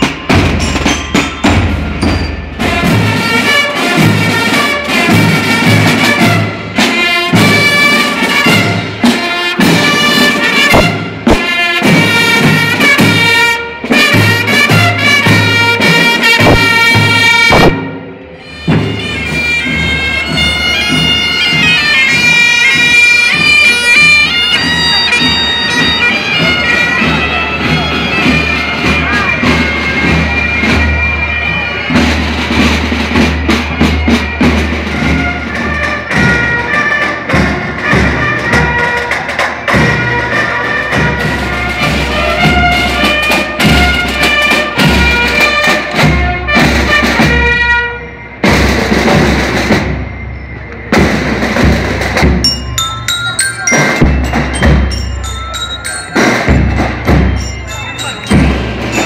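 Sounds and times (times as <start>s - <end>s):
bagpipes playing a march: 2.6s - 48.2s.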